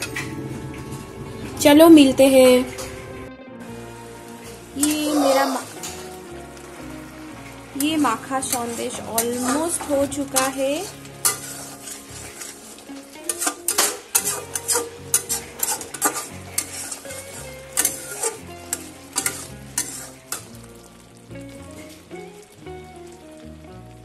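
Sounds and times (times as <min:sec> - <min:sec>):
soft sizzle of bubbling mixture: 0:03.6 - 0:24.0
metal spatula scraping steel pan: 0:04.8 - 0:06.1, 0:07.8 - 0:20.5.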